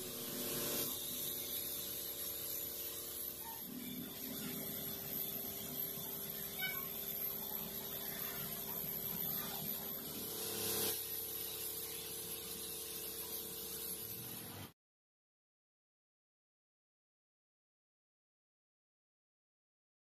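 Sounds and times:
spray gun hissing: 0.0s - 14.7s.

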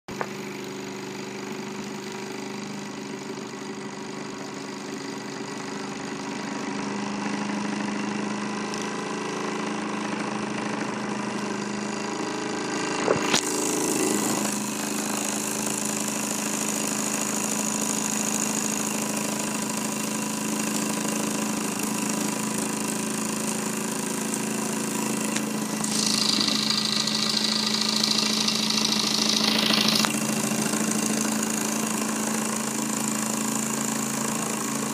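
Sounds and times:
toy steam engine whirring: 13.3s - 33.1s
high steady tone: 25.6s - 30.2s.

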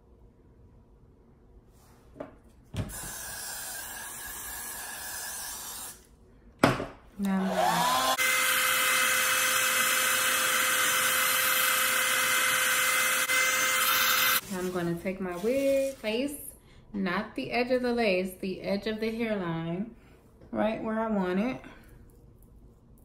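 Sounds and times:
hair dryer blowing: 7.2s - 14.4s.

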